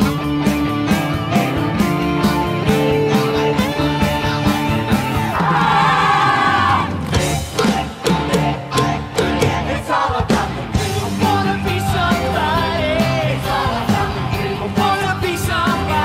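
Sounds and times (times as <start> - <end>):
rock-pop pit band: 0.0 - 16.0
group singing: 7.6 - 16.0.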